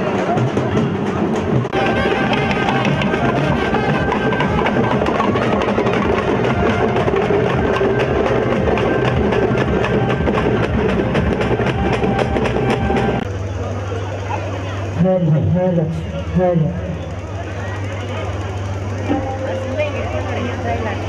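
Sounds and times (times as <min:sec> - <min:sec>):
fast percussion music: 0:00.0 - 0:13.3.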